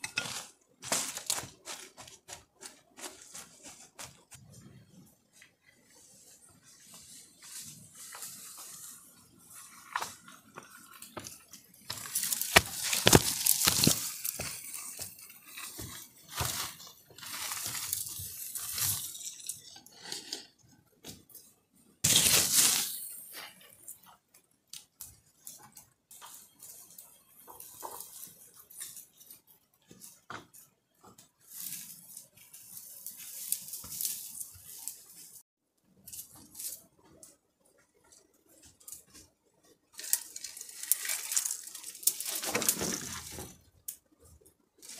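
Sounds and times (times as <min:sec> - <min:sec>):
footsteps through tall grass: 0:00.2 - 0:04.6, 0:11.2 - 0:19.1
pole scraping through leaves: 0:11.9 - 0:20.6, 0:22.0 - 0:23.6, 0:40.0 - 0:43.6.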